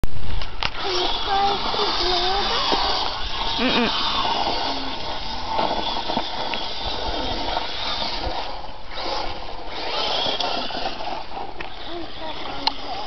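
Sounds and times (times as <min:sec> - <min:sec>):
toy truck driving over dirt: 0:00.3 - 0:13.0
electric motor hissing: 0:00.7 - 0:13.0.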